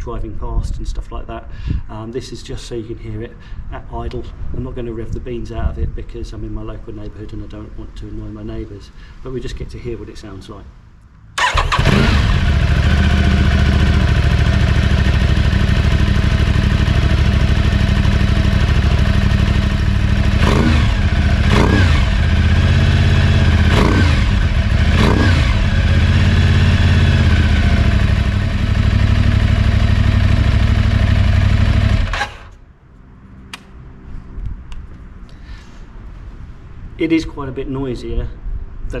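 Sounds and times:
motorcycle throttle blips: 0:11.0 - 0:32.6
motorcycle engine idling: 0:11.4 - 0:32.5.

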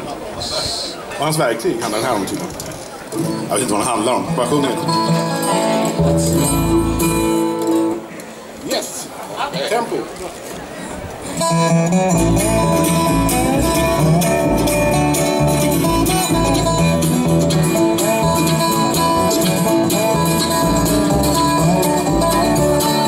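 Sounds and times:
acoustic guitar: 0:02.0 - 0:08.5, 0:11.2 - 0:23.0
mandolin: 0:02.2 - 0:08.3, 0:11.2 - 0:23.0
banjo: 0:02.4 - 0:08.2, 0:11.3 - 0:23.0
upright bass pulsing: 0:05.0 - 0:07.4, 0:11.6 - 0:23.0
harmonica sliding notes: 0:11.4 - 0:23.0.

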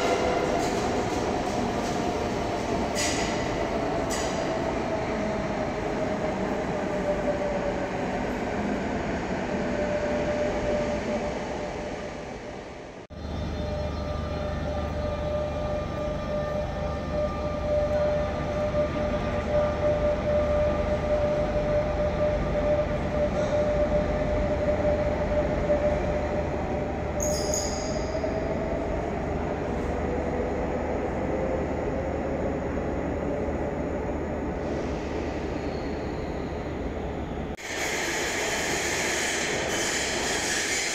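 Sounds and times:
high wheel squeal: 0:27.2 - 0:28.4.

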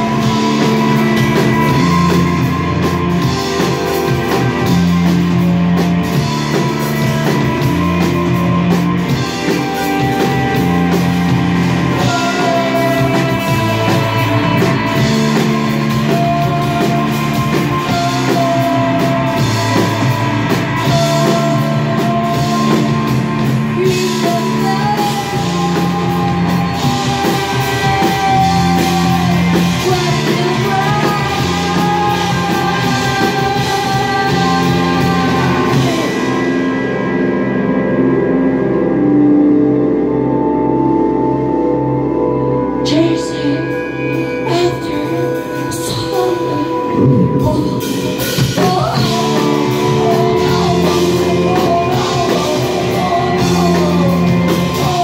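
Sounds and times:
live rock band playing: 0:00.0 - 0:55.0
female singer: 0:10.0 - 0:36.6, 0:42.8 - 0:55.0.

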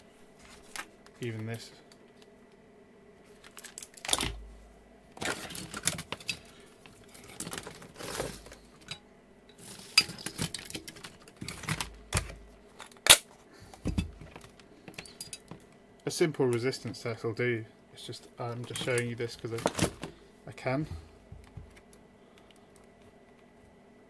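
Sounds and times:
handling rustles and clicks: 0:03.3 - 0:04.5, 0:05.2 - 0:15.8, 0:18.5 - 0:20.2.

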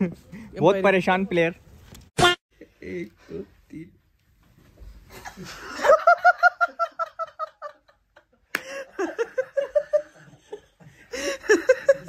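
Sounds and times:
young men laughing: 0:05.1 - 0:12.0.

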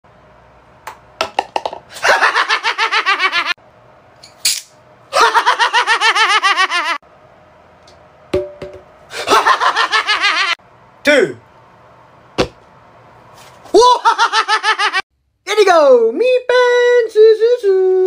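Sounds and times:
high-pitched laughter: 0:05.1 - 0:07.0, 0:13.8 - 0:15.0.

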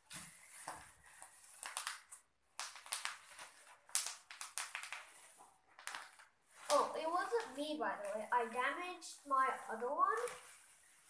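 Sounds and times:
plastic packaging crinkling: 0:00.4 - 0:08.4.

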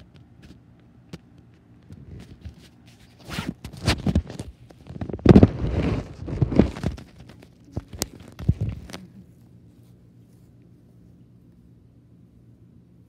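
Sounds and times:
phone handling rubbing and thumping: 0:00.0 - 0:09.2.

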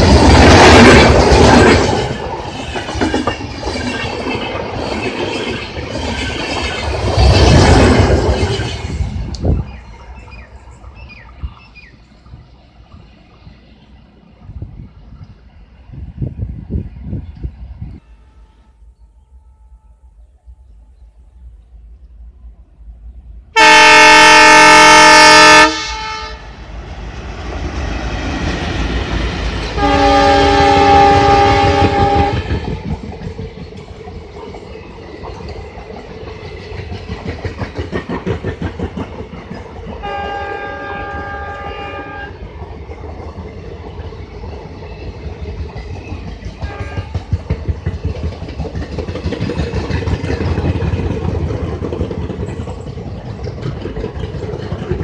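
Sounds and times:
train wheels clickety-clack: 0:00.0 - 0:17.5, 0:26.7 - 0:55.0
low train rumble: 0:00.0 - 0:55.0
locomotive horn blasts: 0:17.9 - 0:20.2, 0:23.6 - 0:26.5, 0:29.8 - 0:32.6, 0:40.0 - 0:42.4, 0:46.6 - 0:47.2.

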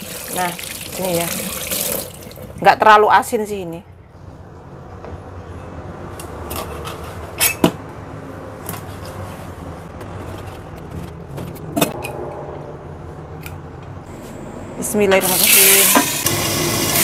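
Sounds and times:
low hum: 0:11.8 - 0:15.2.

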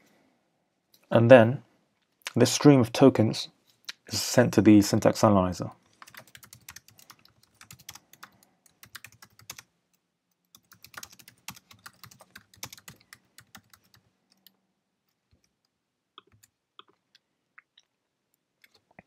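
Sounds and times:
computer keyboard typing: 0:06.0 - 0:09.7, 0:10.4 - 0:14.6, 0:16.2 - 0:17.0.

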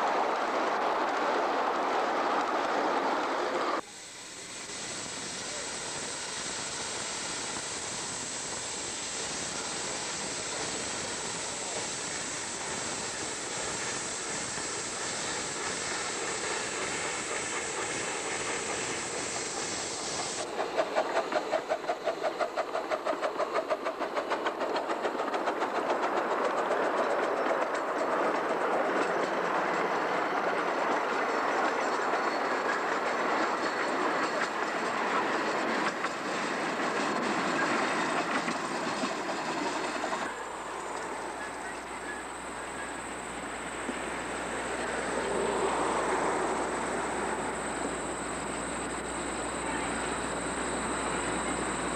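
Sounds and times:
steam locomotive hissing: 0:00.0 - 0:51.9
steam exhaust chuffs: 0:04.1 - 0:26.0, 0:37.3 - 0:51.9
cars rolling on track: 0:20.2 - 0:51.9.

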